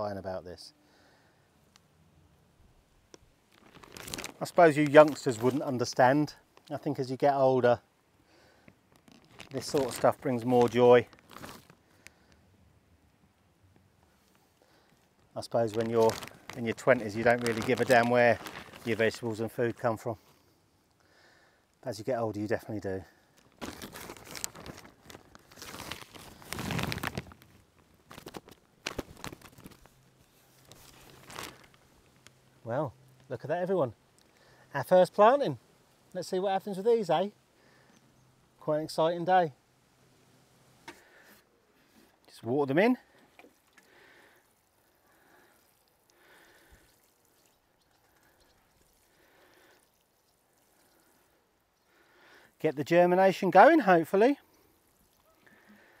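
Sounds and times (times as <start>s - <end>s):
sharp plastic crackles: 3.1s - 5.7s, 8.6s - 12.4s, 14.8s - 19.2s, 23.3s - 33.3s
plastic bag crinkling and rustling: 3.1s - 7.0s, 8.7s - 12.2s, 15.2s - 19.9s, 23.3s - 33.4s
compost crumbling: 3.5s - 6.1s, 8.9s - 11.8s, 15.4s - 19.3s, 23.4s - 32.4s
water sprinkling onto soil: 3.8s - 6.1s, 15.4s - 19.6s, 43.5s - 51.4s.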